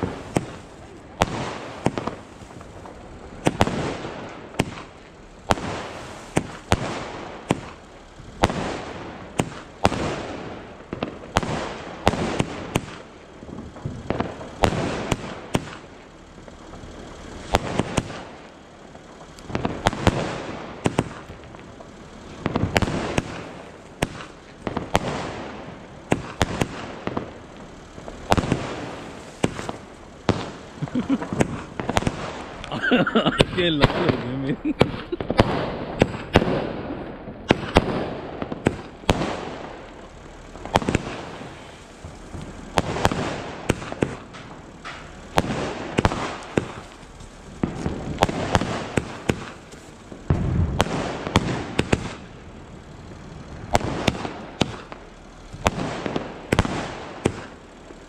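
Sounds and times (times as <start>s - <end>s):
fireworks bursting with sharp bangs: 0.0s - 58.0s.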